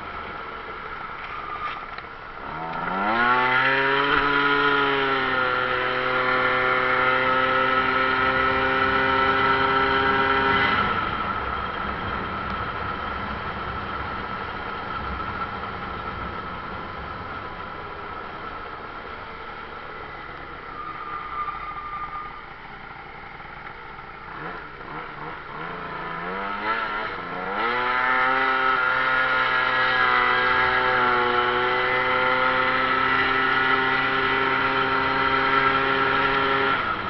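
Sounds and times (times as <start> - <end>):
steady high whine: 0.0 - 27.6
motorcycle engine revving: 0.0 - 37.0
wind and road noise: 0.0 - 37.0.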